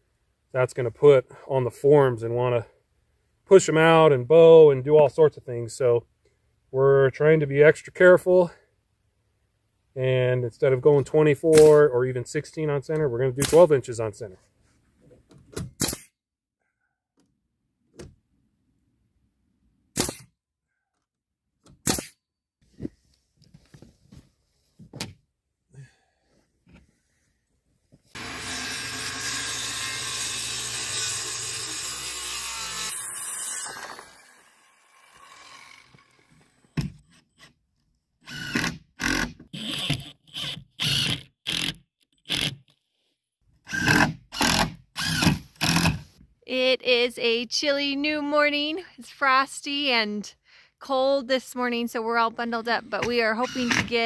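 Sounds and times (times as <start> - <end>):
nail gun firing: 11.5 - 11.8, 15.8 - 16.1, 20.0 - 20.3, 21.8 - 22.2
power tool bursts: 28.2 - 36.6, 38.3 - 40.0, 43.7 - 46.0, 53.4 - 54.0
circular saw cutting: 28.2 - 36.7, 53.4 - 54.0.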